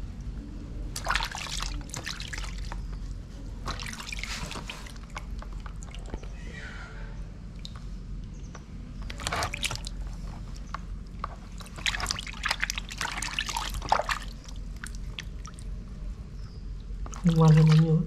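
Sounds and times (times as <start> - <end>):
water splashing in a plastic basin: 0.9 - 3.0, 3.6 - 6.3, 9.0 - 15.8, 17.0 - 18.0.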